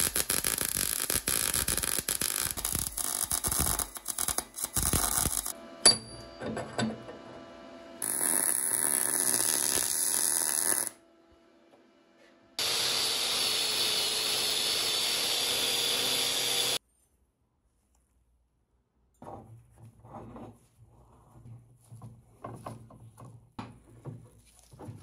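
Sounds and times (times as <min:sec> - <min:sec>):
welding arc buzzing hiss: 0:00.0 - 0:05.6, 0:08.0 - 0:11.0, 0:12.6 - 0:16.8.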